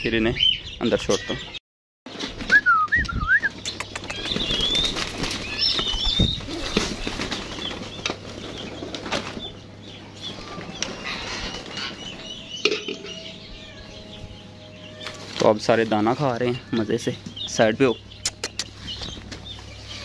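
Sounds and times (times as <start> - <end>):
birds chirping: 0.0 - 20.0
birds flapping wings: 2.1 - 9.5.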